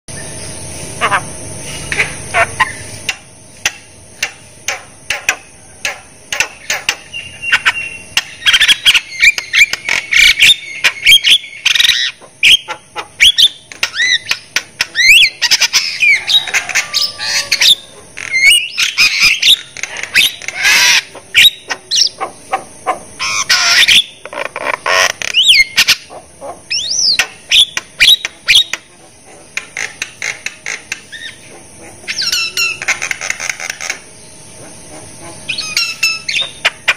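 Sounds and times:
steady high hiss: 0:00.1 - 0:36.9.

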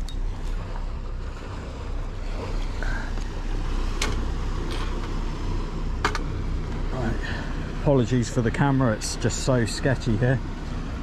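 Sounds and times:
boat engine humming: 0:00.0 - 0:11.0
water noise: 0:00.0 - 0:11.0
wind: 0:00.0 - 0:11.0.

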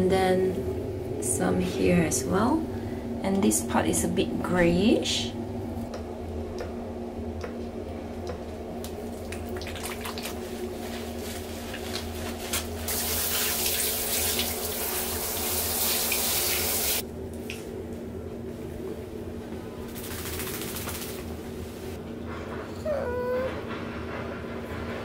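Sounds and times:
steady low hum: 0:00.0 - 0:12.9, 0:17.0 - 0:22.7
shower head spraying water: 0:12.9 - 0:17.0.

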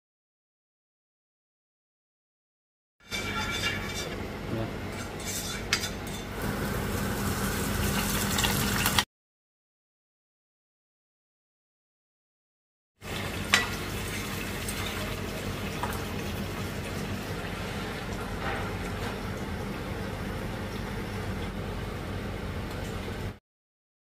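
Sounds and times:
metal utensil clinking on pan: 0:03.0 - 0:04.2, 0:05.0 - 0:06.4, 0:13.5 - 0:14.2
food sizzling in a wok: 0:05.2 - 0:09.1, 0:13.0 - 0:18.0.

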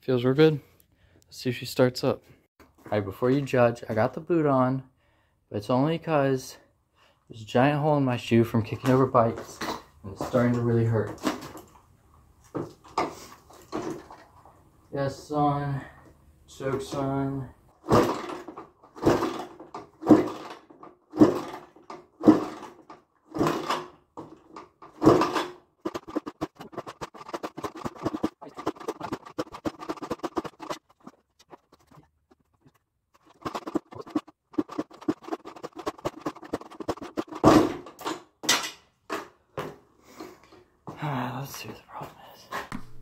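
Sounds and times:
quick ticking: 0:25.8 - 0:37.5.

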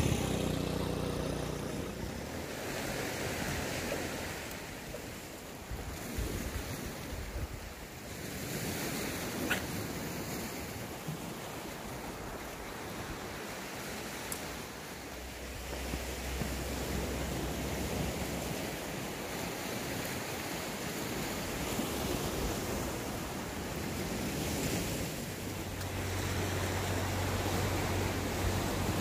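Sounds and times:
passing vehicle engine: 0:00.0 - 0:04.2, 0:25.6 - 0:29.0
sea waves washing on shore: 0:00.0 - 0:29.0
wind on microphone: 0:00.0 - 0:29.0.

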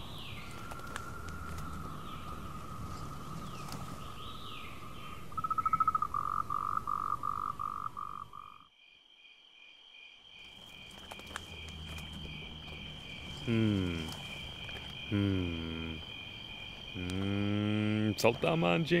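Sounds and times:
pulsing frog call: 0:00.0 - 0:08.7
high insect trill: 0:00.0 - 0:19.0.

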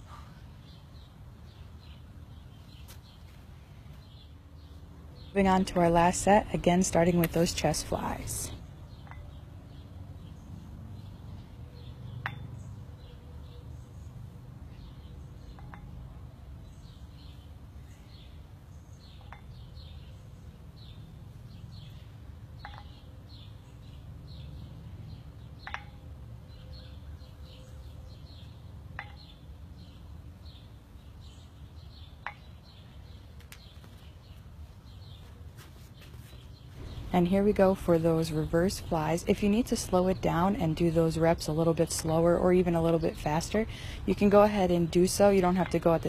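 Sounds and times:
birds chirping: 0:00.0 - 0:46.0
low outdoor rumble: 0:00.0 - 0:46.0
metal dumbbells clinking: 0:12.2 - 0:12.6, 0:15.5 - 0:16.1, 0:22.6 - 0:23.0, 0:25.6 - 0:26.0.

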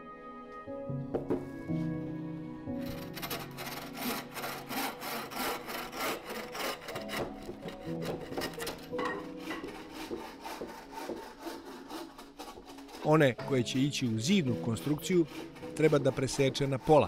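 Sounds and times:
drawknife scraping wood: 0:02.8 - 0:17.0.

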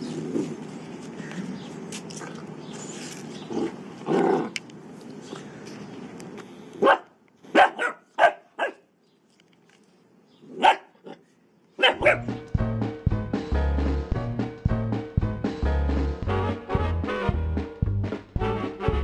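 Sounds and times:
puppy barking: 0:06.8 - 0:08.9, 0:10.5 - 0:11.2, 0:11.8 - 0:12.3.

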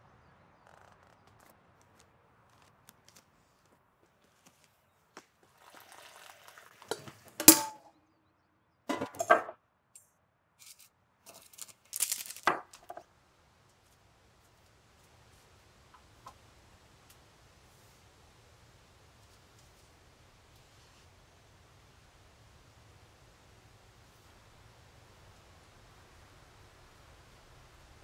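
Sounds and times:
water pouring into mug: 0:05.4 - 0:07.4
crockery clattering: 0:06.9 - 0:07.9, 0:08.9 - 0:09.6.

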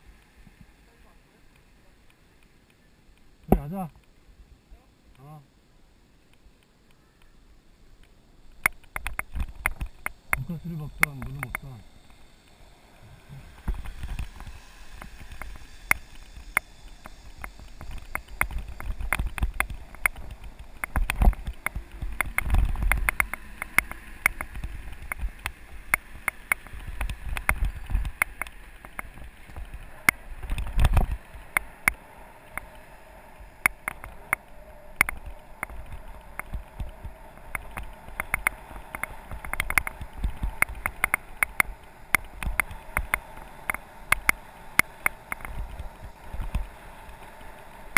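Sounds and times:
bike clicks and rattles over bumps: 0:08.0 - 0:47.9
wind rumble on microphone: 0:08.6 - 0:47.9.

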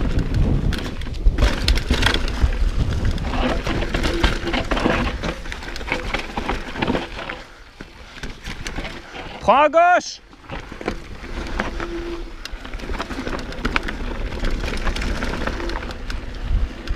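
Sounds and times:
wind rumbling on microphone: 0:00.0 - 0:07.4, 0:10.4 - 0:16.9
bike rattling over bumps: 0:00.0 - 0:16.9
bike tyres crunching over dirt: 0:00.0 - 0:16.9.

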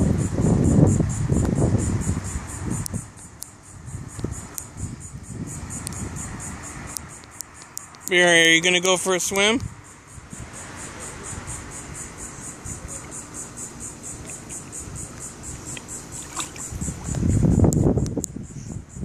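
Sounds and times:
insects chirping: 0:00.0 - 0:19.0
dog wading and drinking water: 0:15.6 - 0:17.2.

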